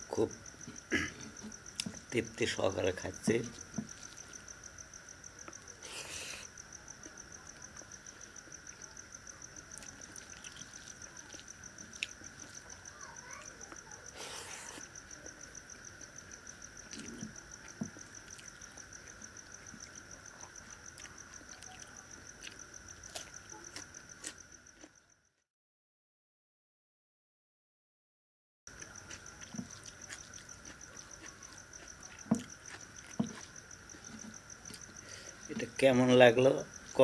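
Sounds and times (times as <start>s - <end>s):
crickets chirping: 0.0s - 25.4s, 28.7s - 37.0s
faint eating clicks: 6.9s - 25.0s, 28.7s - 35.8s.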